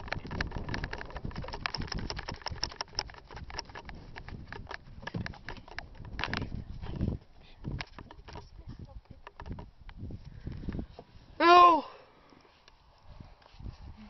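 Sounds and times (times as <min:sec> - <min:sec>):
handheld camera knocks: 0:09.1 - 0:09.7.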